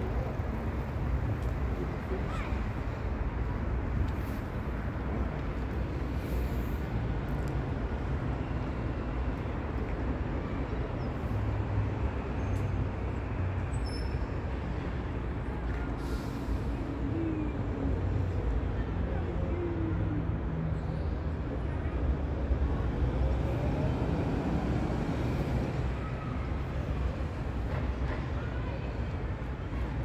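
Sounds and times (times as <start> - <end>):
passing traffic rumble: 0.0 - 30.0.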